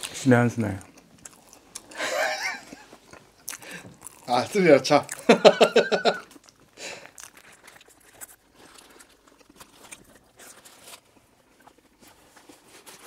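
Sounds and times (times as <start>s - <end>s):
man chewing: 0.8s - 13.0s
paper wrapper rustling: 7.5s - 13.0s.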